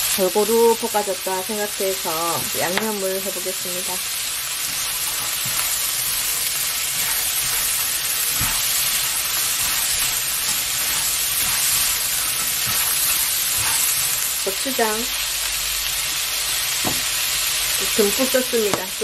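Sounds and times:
crabs sizzling in hot oil: 0:00.0 - 0:19.0
spatula scraping pan: 0:02.1 - 0:15.0.

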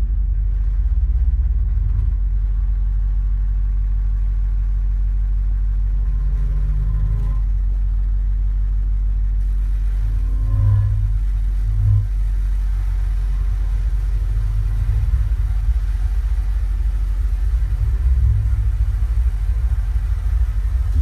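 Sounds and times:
higher electronic hum: 0:00.0 - 0:21.0
low rumbling drone: 0:00.0 - 0:21.0
faint higher tones: 0:09.6 - 0:21.0.

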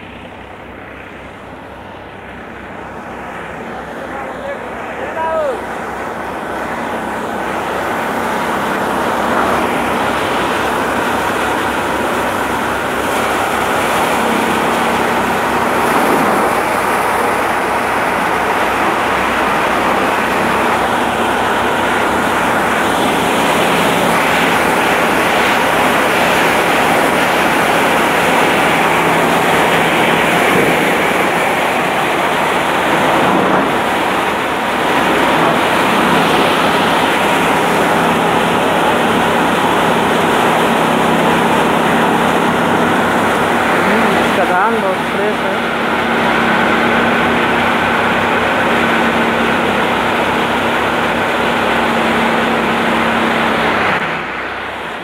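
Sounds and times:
thresher machine running: 0:00.0 - 0:55.0.

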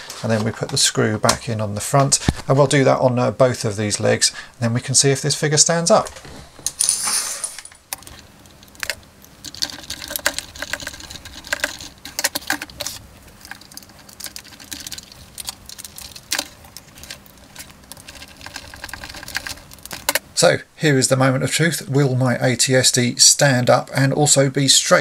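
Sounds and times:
plastic toy parts clicking: 0:07.9 - 0:20.2.

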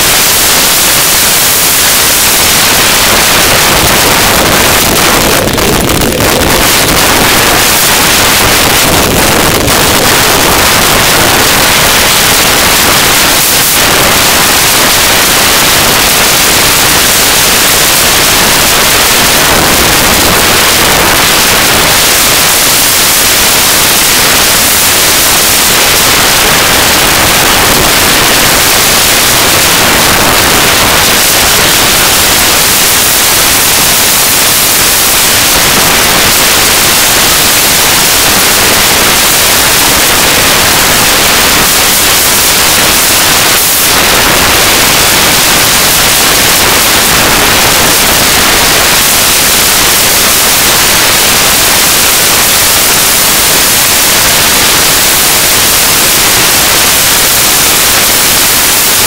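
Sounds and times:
wind noise on microphone: 0:00.0 - 0:59.0.

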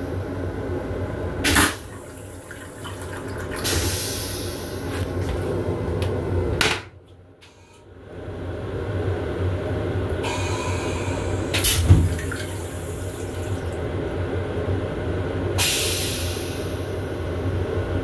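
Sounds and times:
railcar steady hum: 0:00.0 - 0:18.0
water hissing into toilet bowl: 0:01.5 - 0:04.9, 0:10.3 - 0:13.9.

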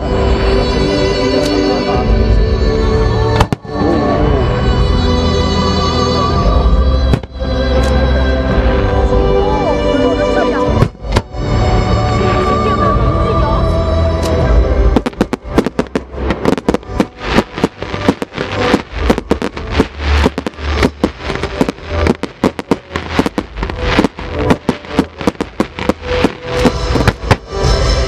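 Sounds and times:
fireworks bursting: 0:03.2 - 0:03.8, 0:07.0 - 0:07.9, 0:14.9 - 0:28.0.

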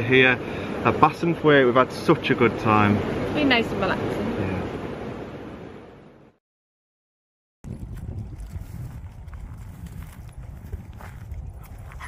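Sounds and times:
wind buffeting microphone: 0:07.6 - 0:12.0.

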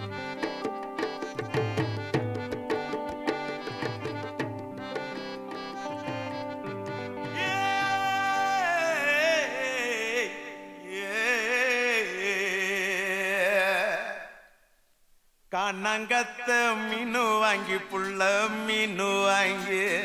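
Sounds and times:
drum strokes: 0:00.0 - 0:08.0
held instrumental tones: 0:00.0 - 0:11.0
solo voice singing: 0:07.3 - 0:14.5, 0:15.5 - 0:20.0.

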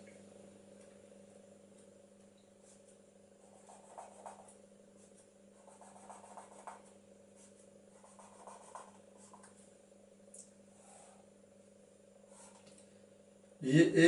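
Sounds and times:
marker scratching on whiteboard: 0:03.4 - 0:04.5, 0:05.6 - 0:09.5.

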